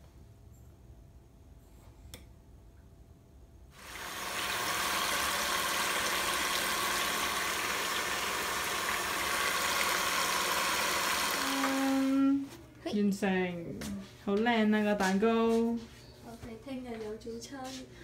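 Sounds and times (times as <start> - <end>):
electric hand mixer whirring: 3.8 - 12.4.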